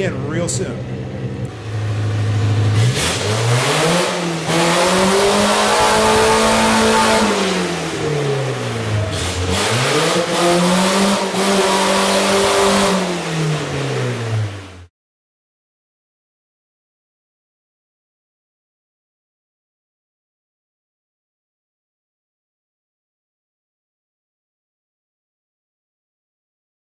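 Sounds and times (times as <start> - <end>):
car engine idling and revving: 0.0 - 14.9.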